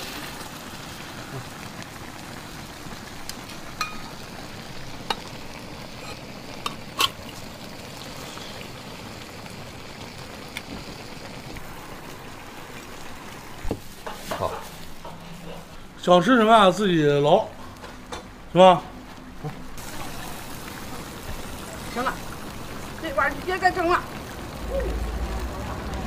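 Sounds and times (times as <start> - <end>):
stew sizzling and bubbling: 0.0 - 26.0
metal spatula scraping a wok: 5.9 - 7.3.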